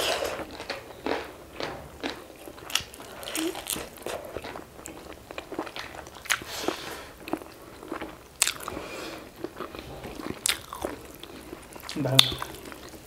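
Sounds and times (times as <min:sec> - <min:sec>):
crunchy bites: 0:00.1 - 0:06.5
chewing and mouth smacks: 0:00.1 - 0:13.0.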